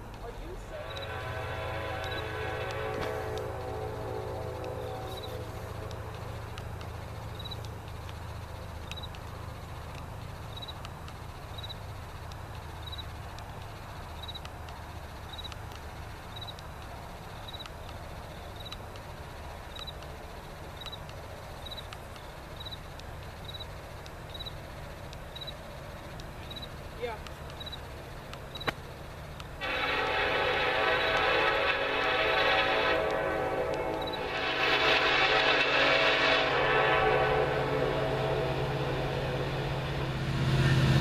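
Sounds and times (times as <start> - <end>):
diesel locomotive rumble: 0.0 - 41.0
insect chirping: 4.8 - 29.4, 34.0 - 34.3.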